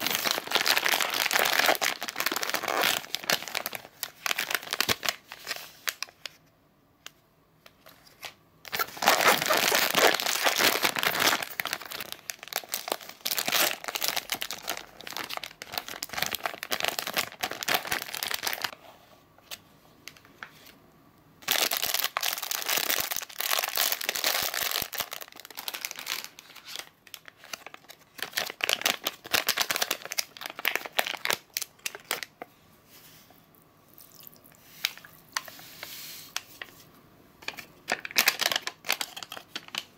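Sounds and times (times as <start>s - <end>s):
plastic packaging crinkling: 0.0s - 6.4s, 7.8s - 18.8s, 21.4s - 32.5s, 37.4s - 39.9s.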